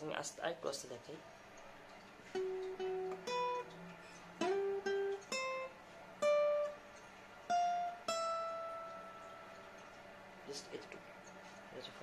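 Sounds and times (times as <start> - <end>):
acoustic guitar single-note lead: 2.3 - 10.9.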